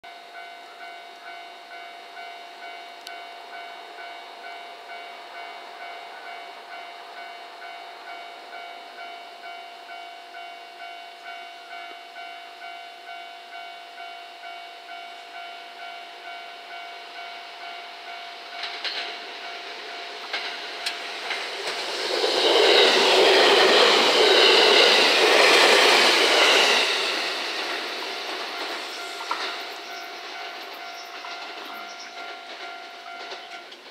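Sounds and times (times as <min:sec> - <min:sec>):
train passing with motor whine: 0:00.1 - 0:33.9
train wheels clicking on rail joints: 0:18.1 - 0:33.9.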